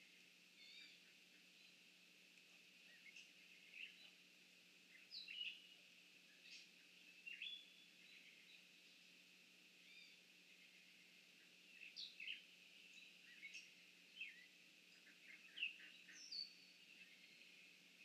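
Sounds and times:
steady high hiss: 0.0 - 18.0.

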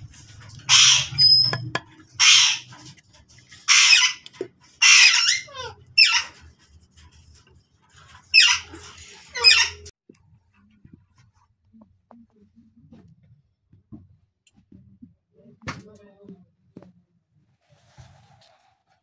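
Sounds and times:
parakeets screeching: 0.2 - 6.5, 8.1 - 9.9.

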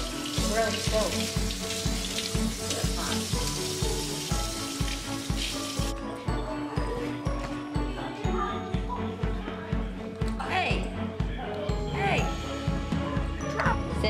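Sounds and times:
faucet sprayer running water: 0.0 - 6.1.

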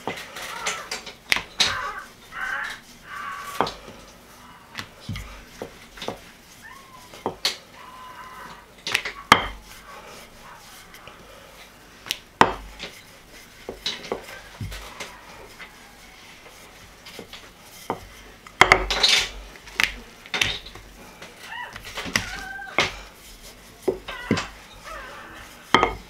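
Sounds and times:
dough handling: 0.0 - 26.0
clatter and rustling: 12.4 - 26.0
rolling pin knocking on counter: 25.8 - 26.0.

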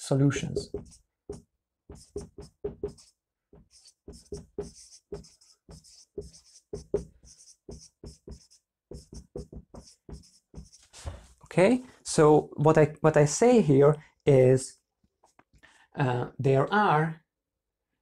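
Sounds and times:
marker writing on whiteboard: 0.3 - 11.3.

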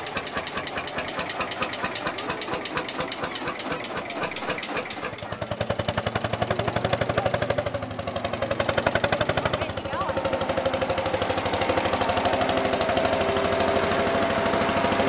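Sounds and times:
tractor engine knocking: 0.0 - 15.0
steady drone: 10.4 - 15.0.

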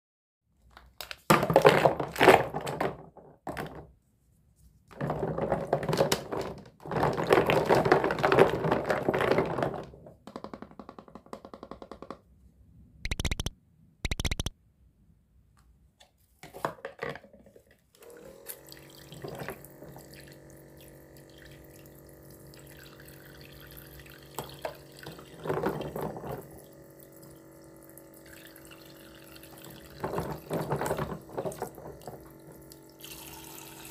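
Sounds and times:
plastic toys clattering in water: 1.0 - 3.9, 4.9 - 10.6, 18.4 - 21.7, 22.5 - 26.9, 28.2 - 33.9
water pump humming: 18.0 - 33.9.

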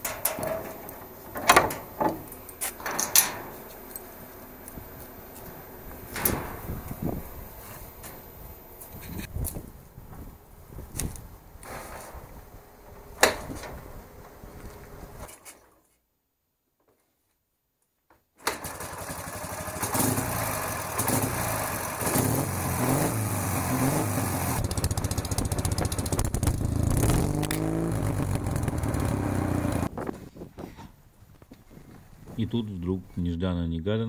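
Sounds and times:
motorcycle engine revving: 18.6 - 29.9.

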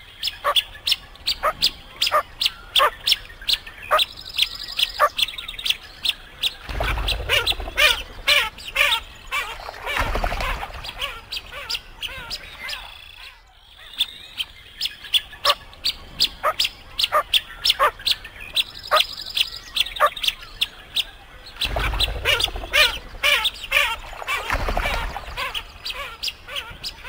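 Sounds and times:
chattering duck calls: 6.7 - 13.3, 21.6 - 27.0.

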